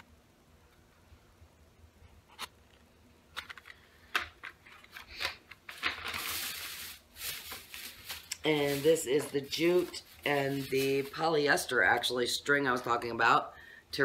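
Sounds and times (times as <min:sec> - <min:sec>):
plastic bag rustling: 0:04.6 - 0:12.1.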